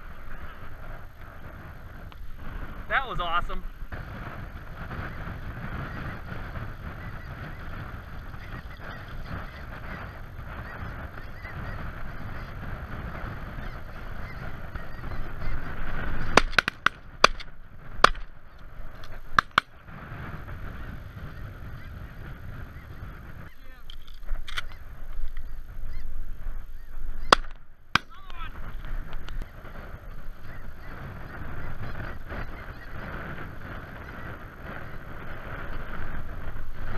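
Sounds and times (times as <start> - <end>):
geese calling: 2.9 - 36.9
shotgun shots: 16.2 - 18.3, 27.3 - 28.3.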